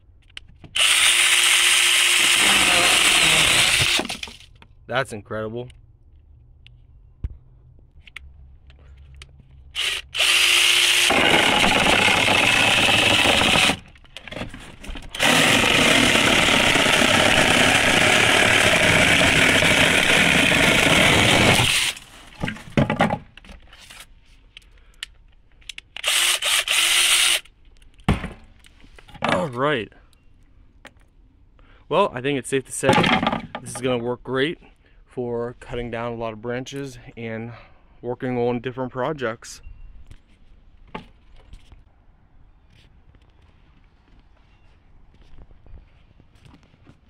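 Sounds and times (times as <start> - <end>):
mini chainsaw cutting wood: 0.8 - 4.5, 9.8 - 13.9, 15.1 - 22.1, 26.0 - 27.4.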